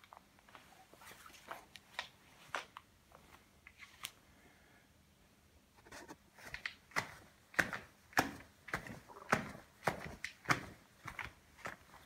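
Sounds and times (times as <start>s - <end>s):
footsteps on cardboard: 5.9s - 12.0s.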